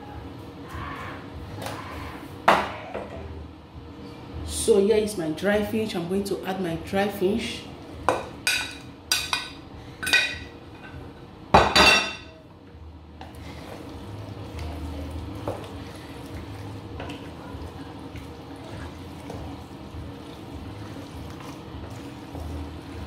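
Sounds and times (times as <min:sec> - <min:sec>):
wooden spoon stirring soup: 0:13.2 - 0:23.0.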